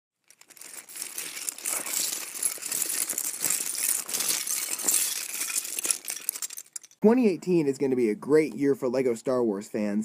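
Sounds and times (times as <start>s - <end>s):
small hard pieces clattering: 0.2s - 7.0s.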